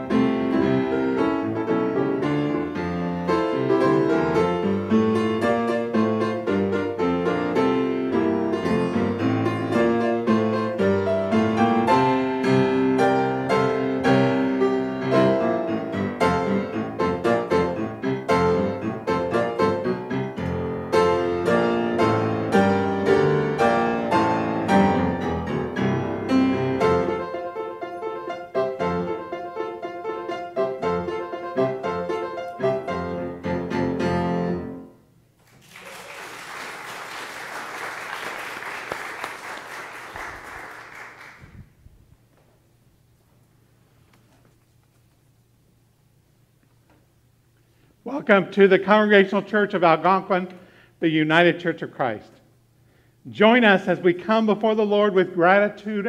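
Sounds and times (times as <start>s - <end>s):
solo grand piano: 0.0s - 35.2s.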